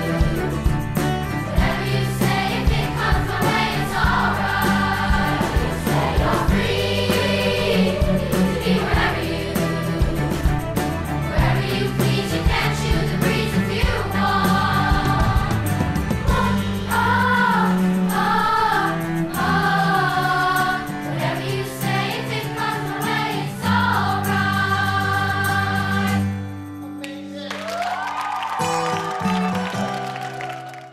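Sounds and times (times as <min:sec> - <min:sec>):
musical accompaniment: 0:00.0 - 0:30.9
choir singing long notes: 0:01.5 - 0:10.6, 0:11.2 - 0:26.4.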